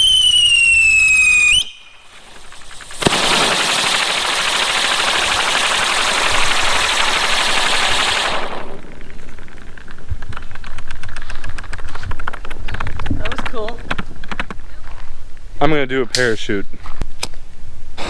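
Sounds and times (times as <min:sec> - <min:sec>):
firework wheel crackling and popping: 0:00.0 - 0:14.4.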